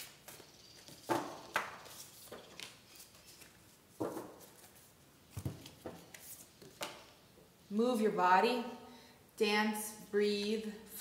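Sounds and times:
cards being shuffled: 0.0s - 6.9s.

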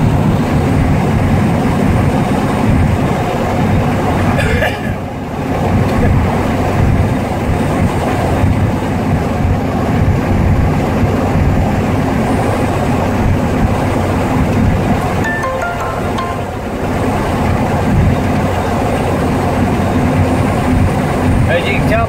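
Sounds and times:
pickup truck engine rumble: 0.0s - 15.3s.

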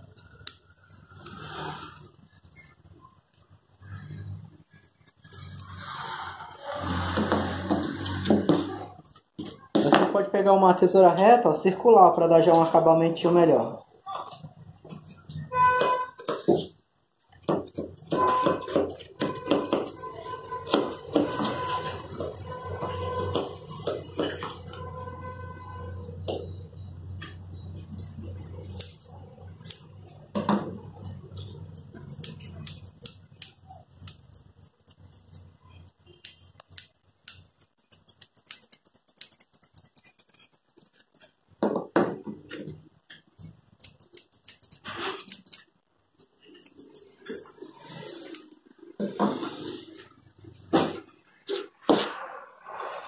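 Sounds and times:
scissors snipping fur: 0.0s - 2.2s, 28.0s - 29.9s, 31.7s - 41.3s, 43.4s - 47.4s.

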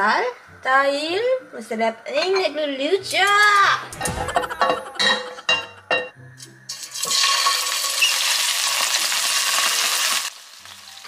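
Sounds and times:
chicken sizzling in hot oil: 6.7s - 11.0s.

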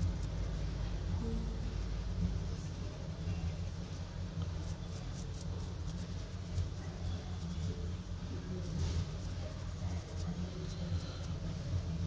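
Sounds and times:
low background hum: 0.0s - 12.0s
small brush scrubbing: 2.2s - 11.6s.

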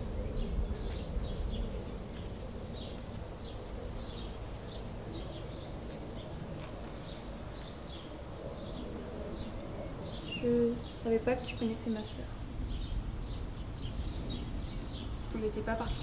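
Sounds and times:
small birds chirping: 0.0s - 16.0s
steady low rumble: 0.0s - 16.0s.

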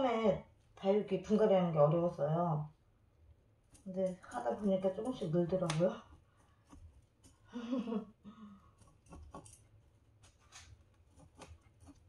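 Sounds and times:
tweezers clicking against pot: 3.7s - 6.1s
potting soil scratching: 3.7s - 7.5s, 8.7s - 12.0s.

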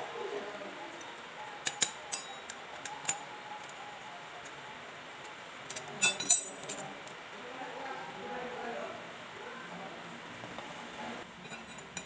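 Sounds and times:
metallic clicks and clinks: 1.0s - 3.8s, 5.2s - 7.0s.

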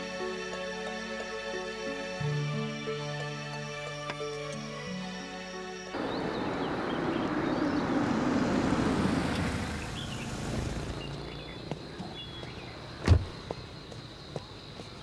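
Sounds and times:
birds chirping: 5.7s - 15.0s
car engine and tyre noise: 5.9s - 15.0s
car door slamming: 6.0s - 13.6s.

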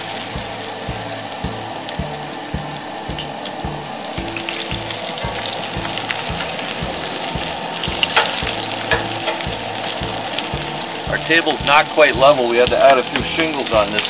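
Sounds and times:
fish sizzling in oil: 0.0s - 14.0s
metal tongs clinking on pan: 8.0s - 10.0s.

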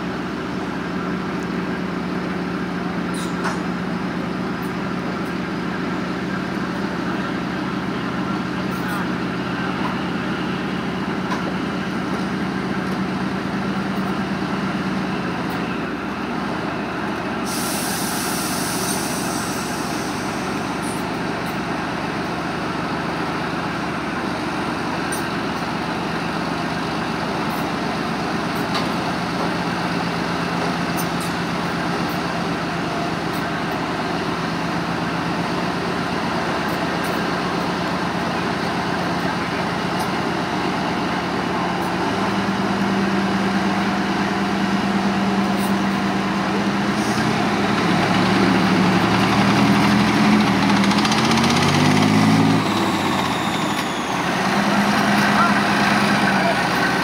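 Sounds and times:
diesel engine running: 0.0s - 57.0s
hiss: 17.4s - 20.9s.

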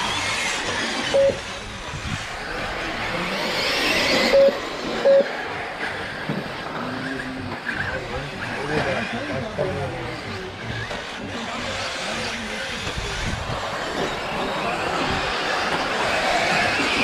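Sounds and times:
rc car motors whining: 0.0s - 17.0s
short beeps: 1.1s - 1.4s, 4.3s - 5.3s.

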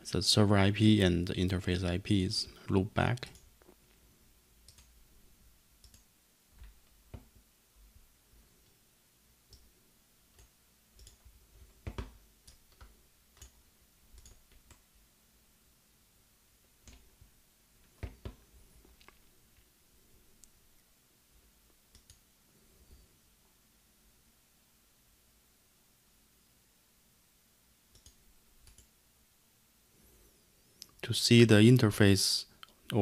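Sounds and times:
computer mouse clicks: 4.6s - 5.0s, 5.8s - 7.3s, 10.3s - 14.8s, 16.8s - 17.1s, 21.9s - 22.3s, 27.9s - 28.9s.

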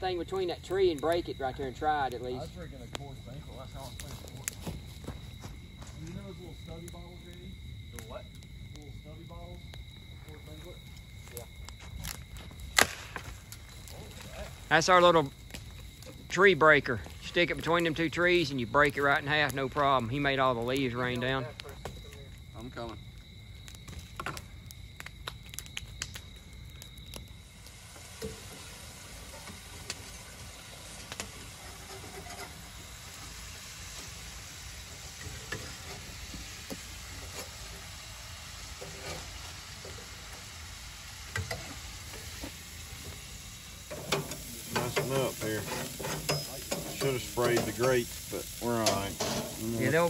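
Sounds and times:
campfire crackling and popping: 0.0s - 50.0s
food sizzling while frying: 27.0s - 50.0s.

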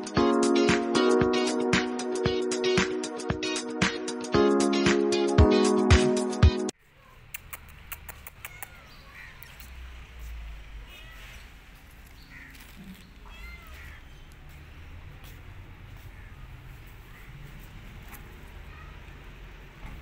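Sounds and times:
cat meowing: 8.1s - 9.5s, 10.8s - 11.6s, 13.2s - 14.3s.

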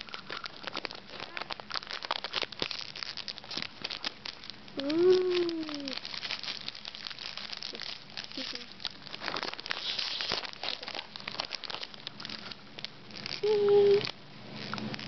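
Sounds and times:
foil snack bag crinkling: 0.0s - 15.0s
young child's drawn-out vocal sound: 4.8s - 6.0s, 13.4s - 14.1s.

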